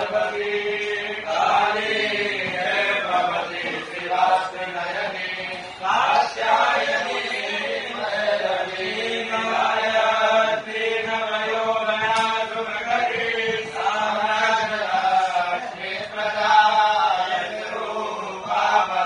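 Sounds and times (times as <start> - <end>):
group chanting a hymn: 0.0 - 19.0.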